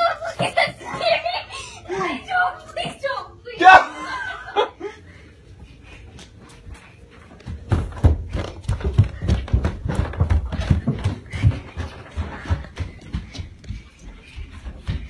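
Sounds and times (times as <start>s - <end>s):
rapid irregular thumps and knocks: 7.5s - 15.0s.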